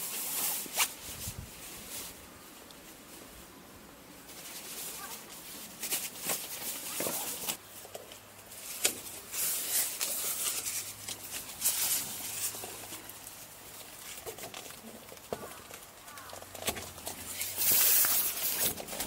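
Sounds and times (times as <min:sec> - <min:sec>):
fabric ground sheet rustling: 0:00.0 - 0:02.3, 0:04.3 - 0:07.6.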